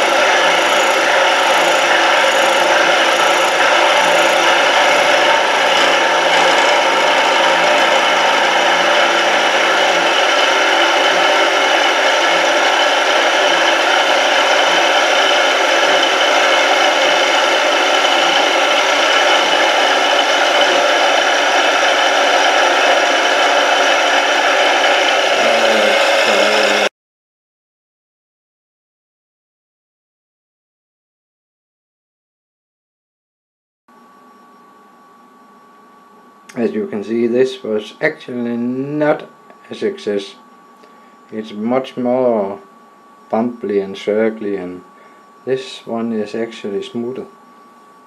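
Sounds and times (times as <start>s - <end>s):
end mill cutting metal: 0.0s - 26.9s.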